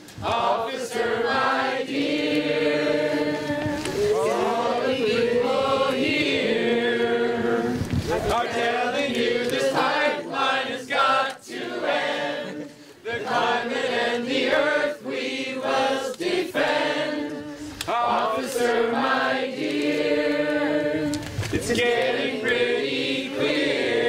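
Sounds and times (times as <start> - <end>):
group singing a protest song: 0.0 - 24.0.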